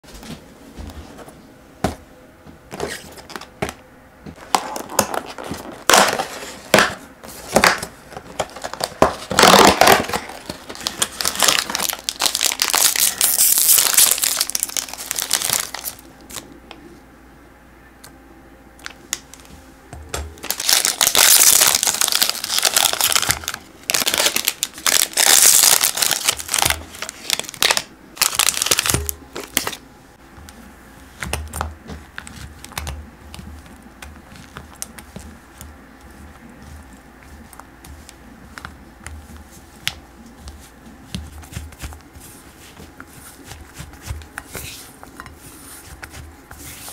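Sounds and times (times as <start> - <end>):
foil wrappers crinkling and tearing: 7.5 - 16.4, 20.4 - 29.8.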